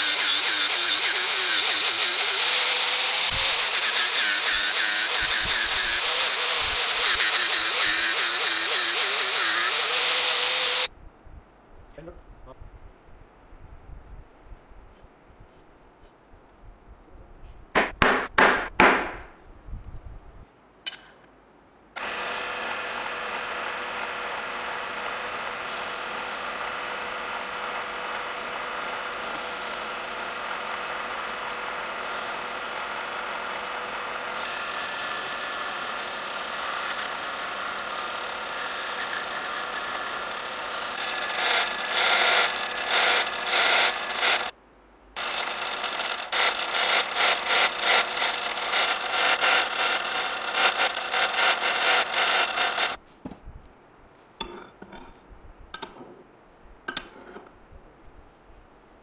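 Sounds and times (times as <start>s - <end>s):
drill press whining: 0.0s - 10.9s, 22.0s - 44.5s, 45.2s - 53.0s.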